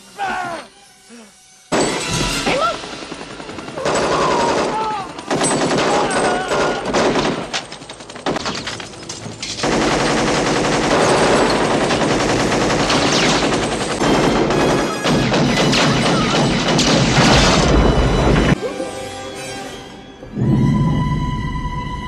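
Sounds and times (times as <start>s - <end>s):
scattered gunshots: 2.6s - 8.9s, 9.5s - 18.6s
automatic gunfire: 3.0s - 8.8s, 9.6s - 17.8s.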